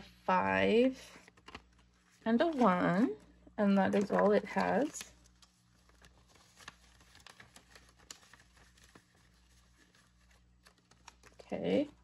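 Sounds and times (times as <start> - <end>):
paper rustling and tapping: 1.3 - 1.9, 3.8 - 11.5.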